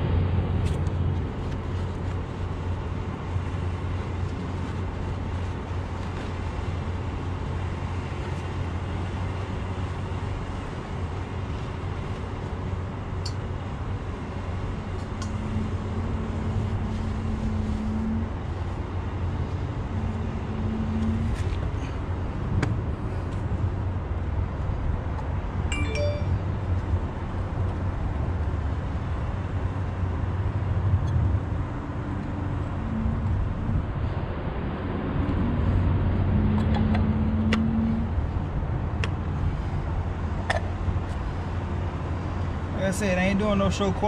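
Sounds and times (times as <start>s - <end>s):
hum: 14.2s - 42.7s.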